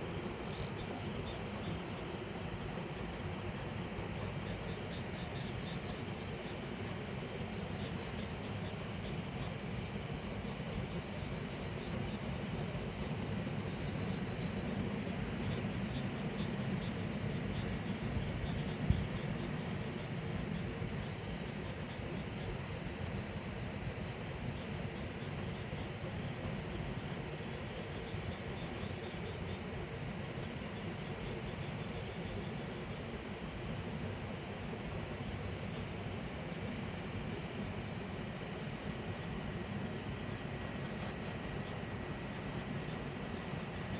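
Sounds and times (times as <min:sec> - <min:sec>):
distant road traffic rumble: 0:00.0 - 0:21.3
crickets chirping: 0:00.0 - 0:43.9.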